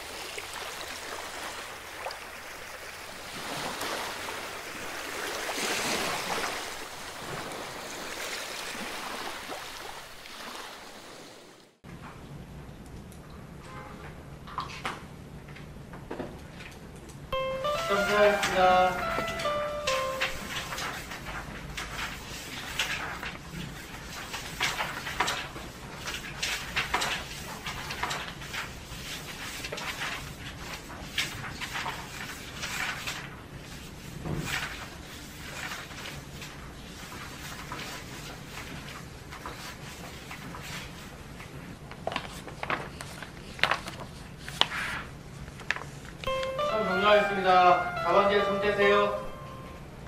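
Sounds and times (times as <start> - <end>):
ocean waves on beach: 0.0 - 11.6
paper rustling: 17.8 - 46.2.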